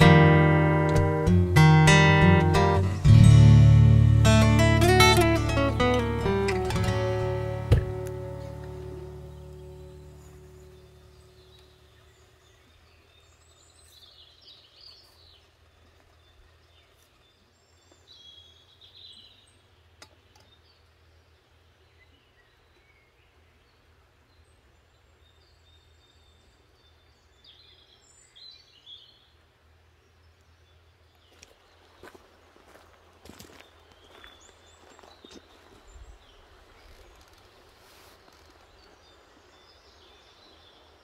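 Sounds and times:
faint bird song: 4.3s - 41.0s.

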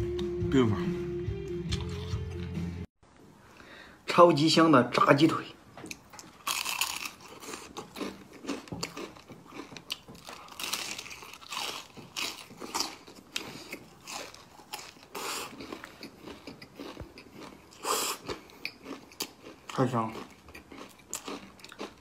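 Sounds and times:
chewing crispy fried chicken: 5.9s - 22.0s.

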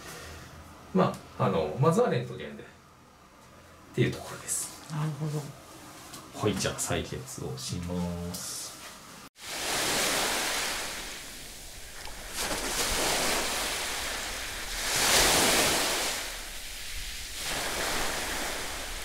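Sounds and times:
sea waves breaking on beach: 9.4s - 19.0s.

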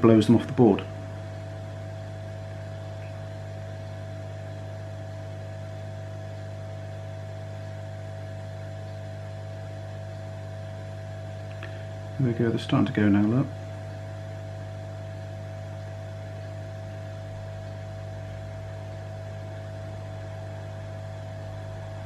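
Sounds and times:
hot air blower humming: 0.0s - 22.0s.

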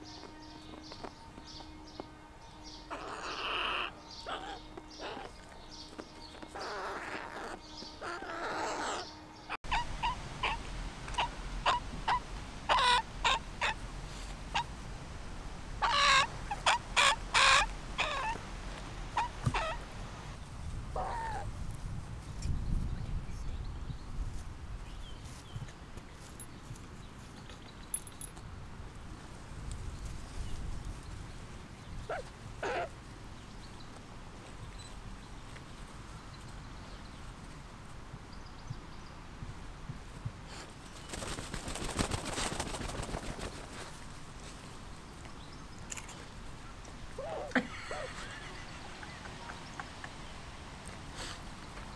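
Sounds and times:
crow calling harshly: 2.9s - 5.4s, 6.5s - 10.6s, 15.8s - 18.4s.

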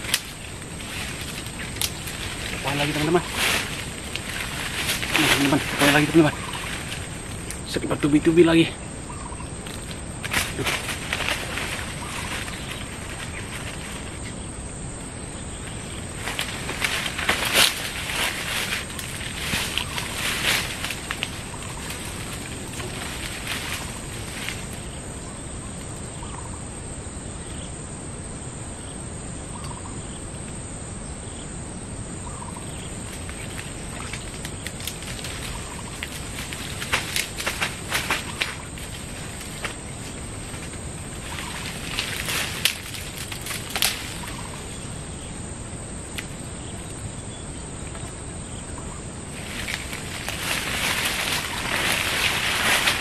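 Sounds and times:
leaves and undergrowth rustling: 0.0s - 27.7s, 29.0s - 53.0s
high-pitched insect drone: 0.0s - 53.0s
faint short calls: 1.0s - 7.7s.

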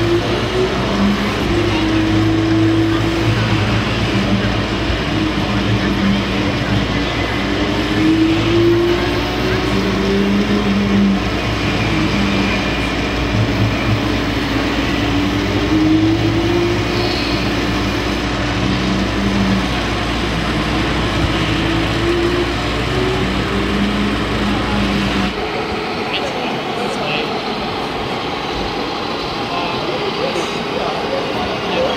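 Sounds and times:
crowd murmur: 0.0s - 31.9s
simulated diesel truck engine: 0.0s - 31.9s.

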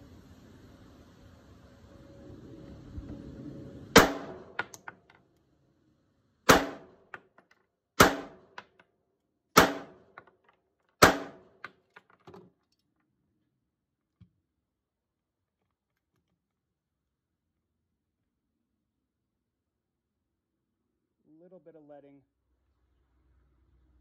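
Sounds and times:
pistol shots: 4.0s - 4.9s, 6.5s - 7.0s, 8.0s - 8.6s, 9.6s - 10.1s, 11.0s - 11.5s.

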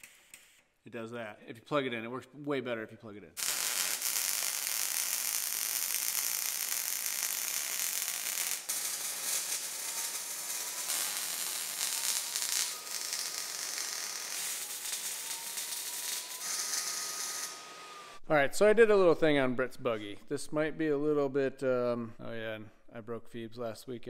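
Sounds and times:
welding arc crackling sizzle: 3.4s - 18.2s.

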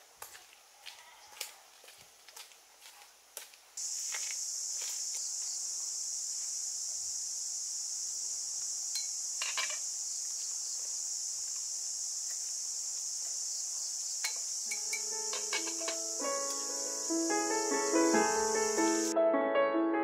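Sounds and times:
insect chorus: 3.8s - 19.1s
chopsticks clinking on metal pot: 14.2s - 16.0s
music: 14.7s - 20.0s.

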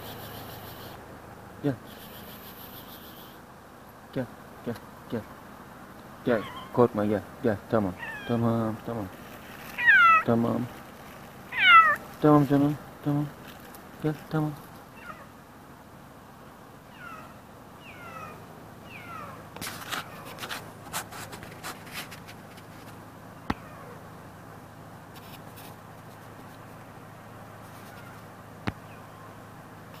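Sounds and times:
kitten meowing: 6.3s - 6.8s, 8.0s - 8.4s, 9.8s - 10.3s, 11.5s - 12.0s, 15.0s - 15.3s, 16.9s - 19.4s
rustling handling noise: 8.8s - 12.2s, 13.3s - 14.0s, 19.6s - 23.1s.

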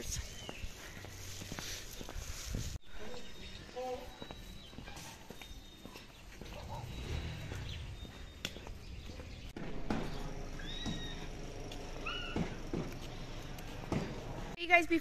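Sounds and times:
high chirping animal calls: 10.2s - 12.6s.

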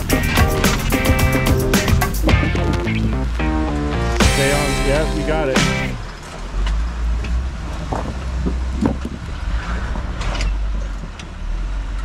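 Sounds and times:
car engine running low: 0.0s - 5.1s
tyres knocking on rocks: 1.9s - 3.2s.

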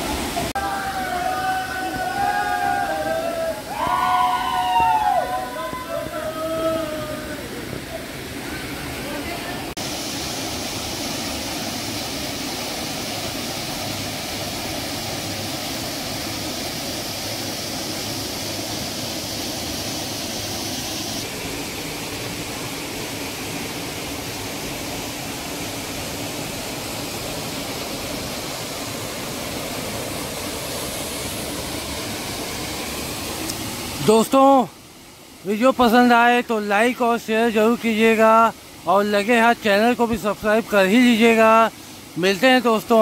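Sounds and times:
waterfall rushing: 0.0s - 43.0s.

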